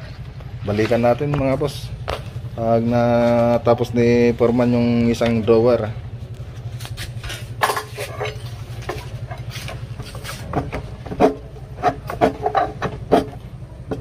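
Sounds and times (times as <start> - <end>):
blade scraping board edge: 6.9 - 14.0.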